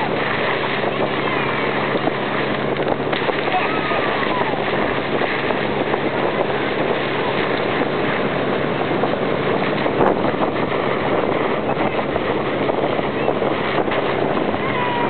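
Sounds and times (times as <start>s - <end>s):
motorboat engine running: 0.0s - 15.0s
wind buffeting microphone: 0.0s - 15.0s.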